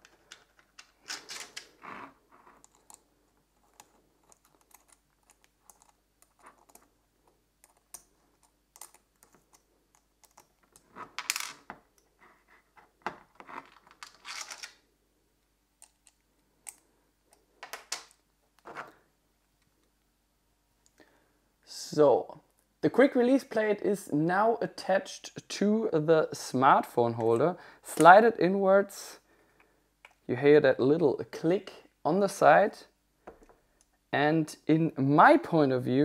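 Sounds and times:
plastic and metal parts clicking: 0:02.5 - 0:06.9, 0:15.8 - 0:18.7.

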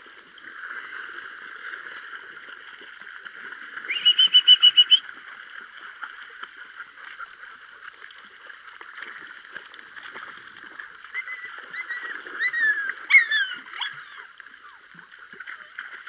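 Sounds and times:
creek water rippling: 0:00.0 - 0:16.0
puppies splashing in water: 0:00.0 - 0:16.0
short high falling calls: 0:03.9 - 0:05.0.

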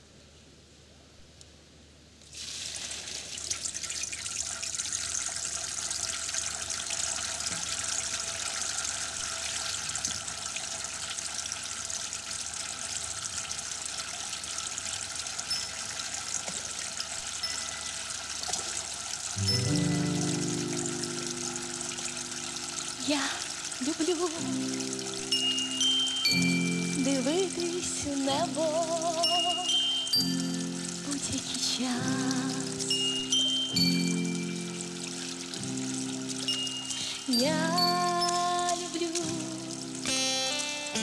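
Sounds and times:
water splashing into tank: 0:02.2 - 0:19.4.

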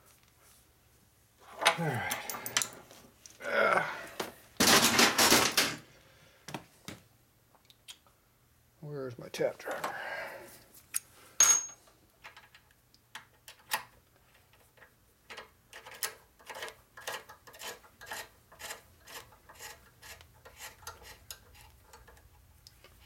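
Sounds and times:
metal tool clanking on workbench: 0:11.4 - 0:11.8.

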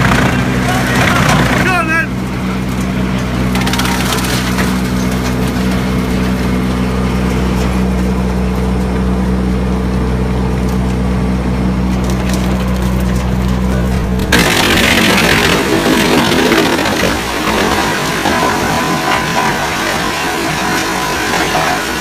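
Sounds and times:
wood cracking and splintering: 0:00.0 - 0:01.9, 0:02.6 - 0:06.8, 0:11.8 - 0:22.0
wood chipper running: 0:00.0 - 0:22.0.

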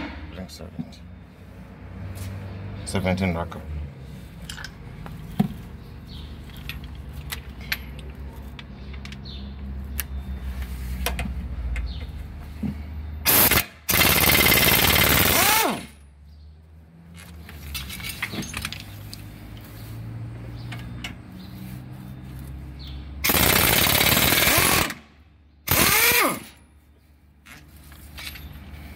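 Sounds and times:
pneumatic impact wrench hammering: 0:13.2 - 0:16.0, 0:23.2 - 0:25.0, 0:25.6 - 0:26.6.

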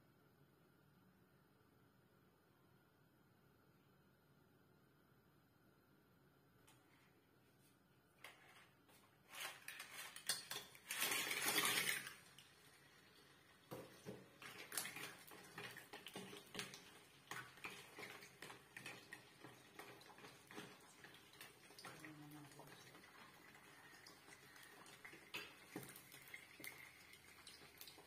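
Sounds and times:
shells scraping against pan: 0:09.3 - 0:12.0.

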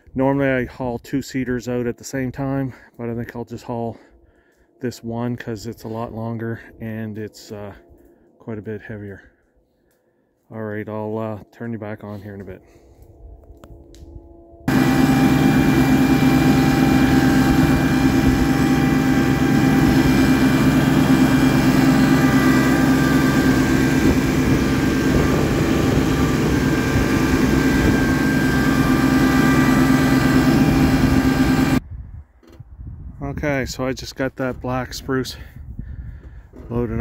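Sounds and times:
tractor engine running under load: 0:14.7 - 0:31.8.

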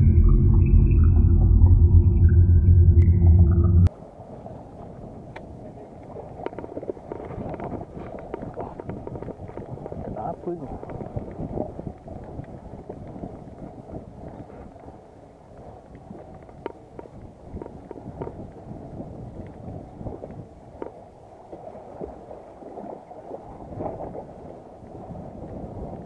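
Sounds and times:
wind buffeting microphone: 0:00.0 - 0:21.3, 0:21.9 - 0:26.0
water lapping around boat: 0:04.0 - 0:26.0.

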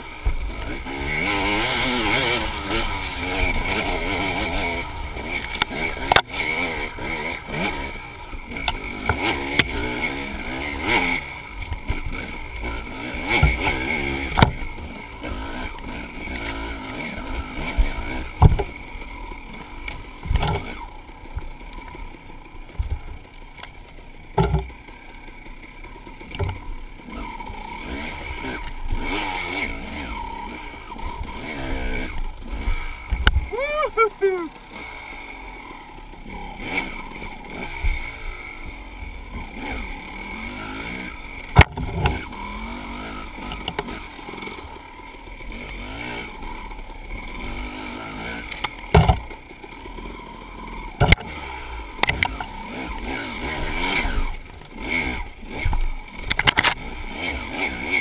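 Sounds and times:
dirt bike engine revving: 0:00.0 - 0:58.0
bike bumping with sharp knocks: 0:13.2 - 0:14.7, 0:17.6 - 0:18.8, 0:20.2 - 0:21.5, 0:24.3 - 0:24.8, 0:26.4 - 0:26.7, 0:41.5 - 0:42.3, 0:48.6 - 0:49.4, 0:50.9 - 0:53.8.

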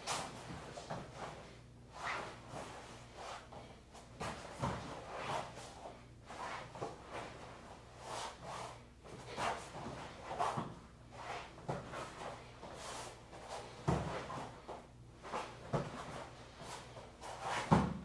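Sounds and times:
body thumping on foam mat: 0:17.5 - 0:18.0.

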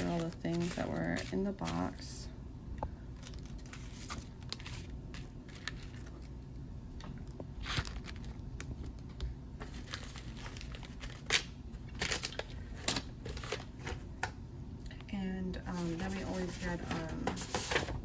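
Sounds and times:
plastic packaging crinkling: 0:00.0 - 0:02.2, 0:03.1 - 0:06.4, 0:07.2 - 0:14.0.

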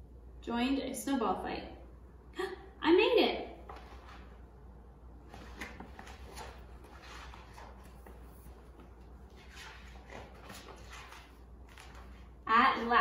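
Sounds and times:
low steady hum: 0:00.0 - 0:13.0
paper pages rustling: 0:05.2 - 0:12.4.

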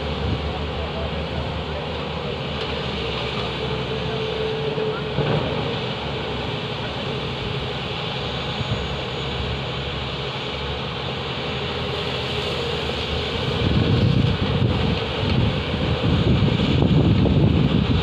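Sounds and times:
excavator working: 0:00.0 - 0:18.0.

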